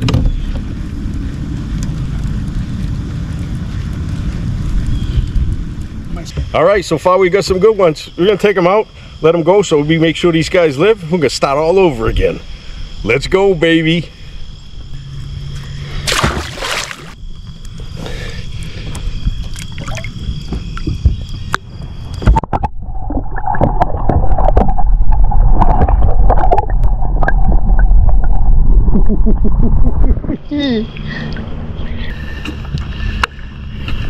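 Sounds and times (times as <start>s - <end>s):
crickets chirping: 0.1s - 34.0s
gurgling sloshing water underwater: 15.8s - 17.2s, 18.5s - 31.1s
water splash: 16.0s - 17.2s, 19.6s - 20.2s, 22.3s - 28.5s.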